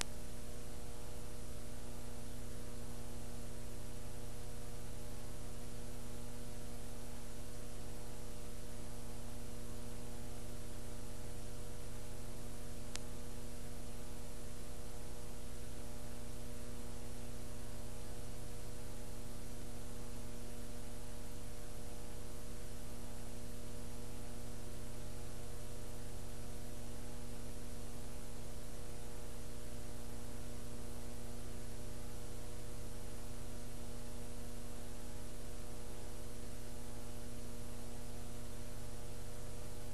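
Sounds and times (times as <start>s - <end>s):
faint tick: 0.0s - 0.2s, 12.9s - 13.1s
electrical mains hum with hiss: 0.0s - 39.9s.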